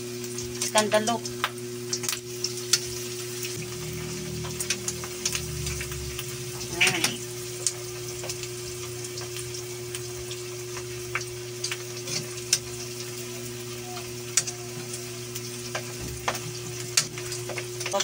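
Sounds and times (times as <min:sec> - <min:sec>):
meat deep-frying in hot oil: 0:00.0 - 0:18.0
oil popping and ticking: 0:00.0 - 0:18.0
steady low hum: 0:00.3 - 0:11.7.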